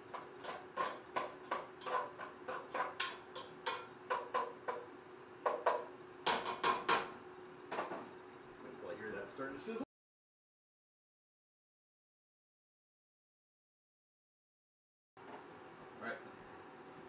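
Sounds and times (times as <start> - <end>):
spoon scraping and knocking pot: 0.0 - 4.9, 5.5 - 8.0.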